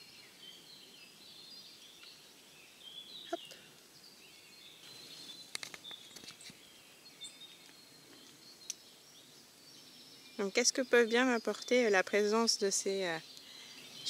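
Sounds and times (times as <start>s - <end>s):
faint birdsong: 0.0s - 14.0s
droppings ticking on leaves: 4.8s - 6.6s.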